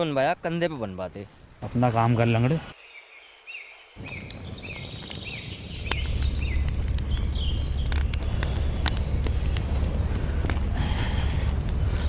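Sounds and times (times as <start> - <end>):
small birds chirping: 0.0 - 12.0
deep rumble: 4.0 - 12.0
wood fire crackling and popping: 4.0 - 12.0.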